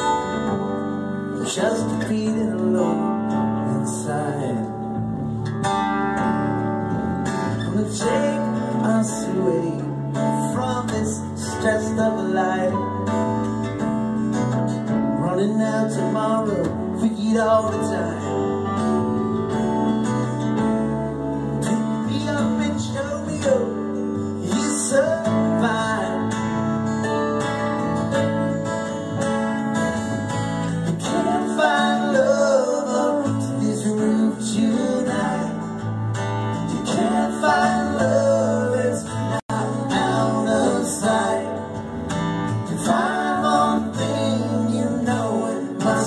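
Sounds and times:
strummed acoustic guitar: 0:00.0 - 0:46.0
upright bass: 0:00.0 - 0:46.0.

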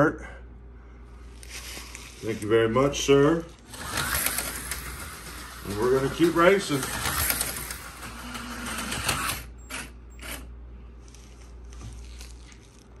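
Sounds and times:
slot car motor whirring: 0:03.2 - 0:11.4.

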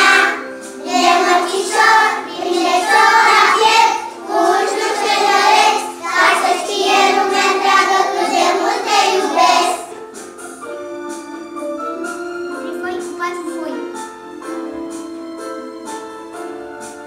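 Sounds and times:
children singing in unison: 0:00.0 - 0:10.0.

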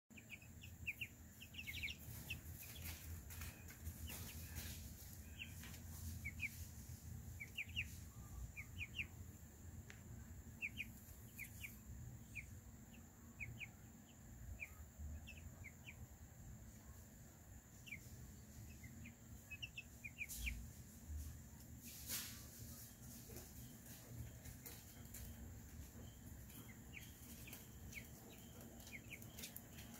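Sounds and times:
chicks peeping: 0:00.1 - 0:29.9.

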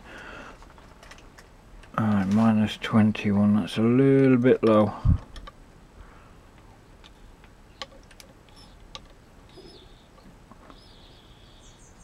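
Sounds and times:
small clicks and ticks: 0:06.5 - 0:10.8
faint high bird chirp: 0:08.5 - 0:08.8, 0:09.5 - 0:12.0.

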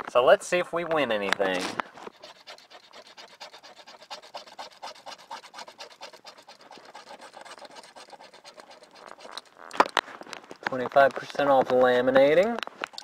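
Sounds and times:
scratch card being scratched: 0:01.5 - 0:09.9.

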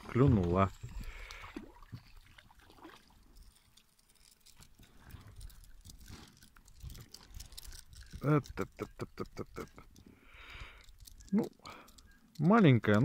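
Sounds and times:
fishing tackle clicks and knocks: 0:03.1 - 0:13.0.

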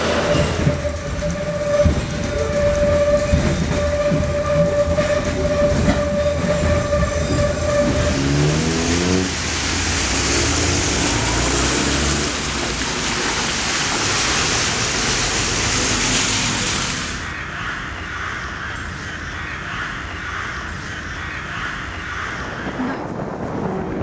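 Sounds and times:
train horn: 0:00.0 - 0:09.4
outdoor ambience: 0:00.0 - 0:24.0
traffic on wet street: 0:06.6 - 0:17.5.

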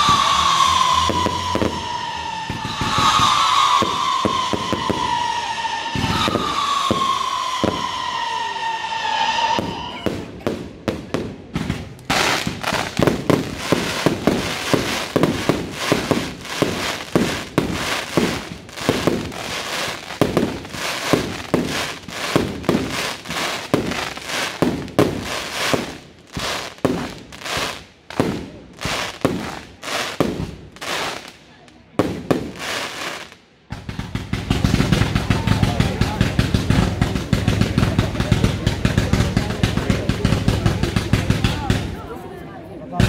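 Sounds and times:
firework whistle: 0:00.0 - 0:10.5, 0:11.6 - 0:31.3
firework shell bursts and bangs: 0:09.6 - 0:31.2, 0:33.7 - 0:41.9.

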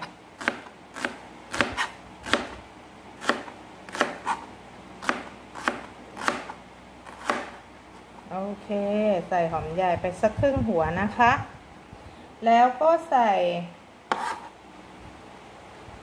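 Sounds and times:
knife chopping onion on board: 0:00.4 - 0:02.6, 0:03.2 - 0:04.4, 0:05.0 - 0:07.6, 0:14.1 - 0:14.5.

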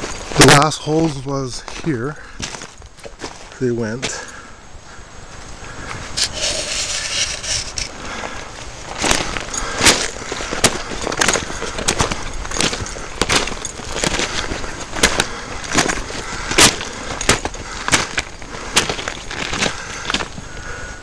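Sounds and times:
footsteps crunching on loose rock: 0:00.0 - 0:04.4, 0:05.4 - 0:20.9.

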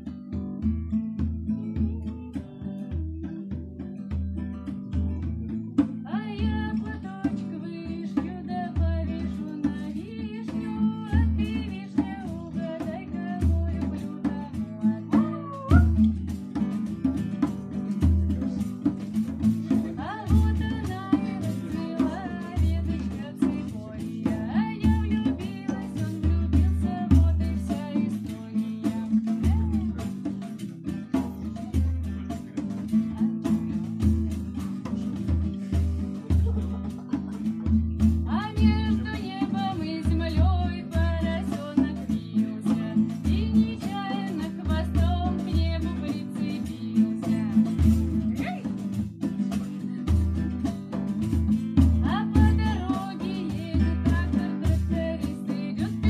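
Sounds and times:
acoustic guitar music: 0:00.0 - 0:56.0
drum beat: 0:00.4 - 0:06.7, 0:08.2 - 0:56.0
person singing: 0:06.1 - 0:16.0.

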